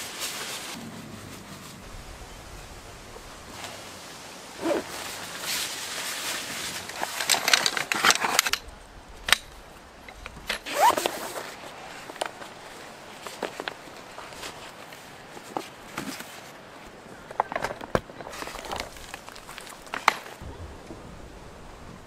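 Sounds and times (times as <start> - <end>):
tent zipper being pulled: 4.6 - 8.5, 10.5 - 12.1
nylon fabric rustling: 10.4 - 16.6.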